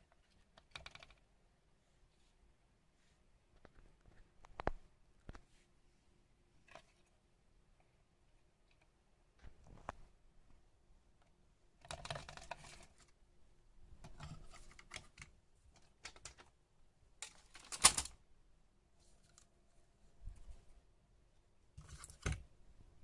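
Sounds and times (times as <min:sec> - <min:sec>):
laptop parts handling: 0:11.8 - 0:13.2, 0:14.0 - 0:16.6, 0:17.2 - 0:18.2, 0:21.8 - 0:22.5.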